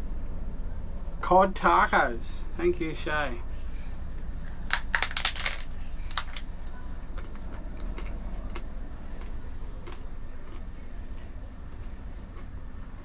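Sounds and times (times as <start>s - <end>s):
low hum: 0.0s - 13.0s
taco shell crunching: 4.6s - 6.5s, 7.1s - 13.0s.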